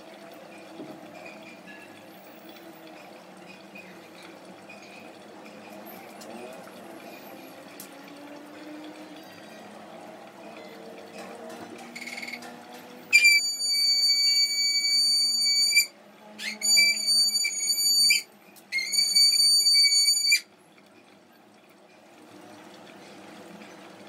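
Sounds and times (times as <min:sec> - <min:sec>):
pressure cooker whistling: 0:11.9 - 0:20.5.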